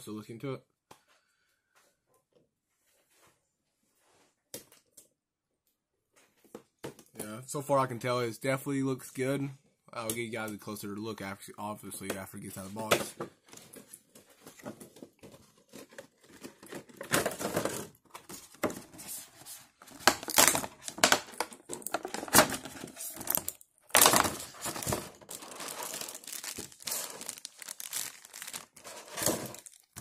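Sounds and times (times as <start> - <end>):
plastic packaging crinkling: 19.4 - 30.0
tearing-like rustles: 24.6 - 30.0.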